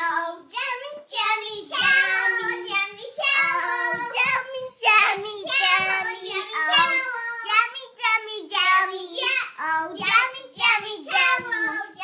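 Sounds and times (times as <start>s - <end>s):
young child singing: 0.0s - 12.0s.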